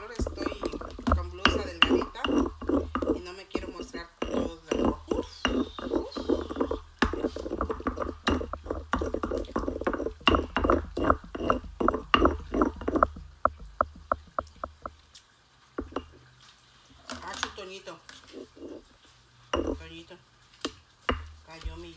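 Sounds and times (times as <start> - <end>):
stone pestle grinding in mortar: 0.0 - 14.9, 15.8 - 16.2, 18.2 - 18.9, 19.6 - 19.8.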